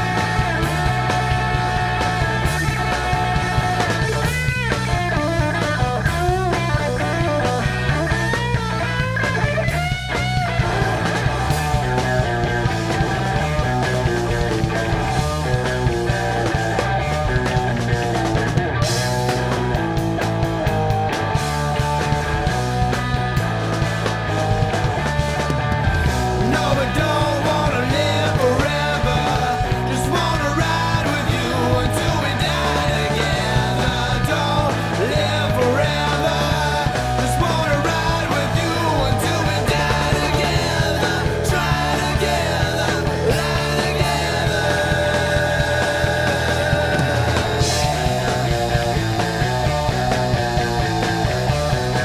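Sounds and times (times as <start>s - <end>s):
bass and drum beat: 0.0s - 52.0s
electric guitar lead: 0.0s - 52.0s
person singing: 26.4s - 49.0s.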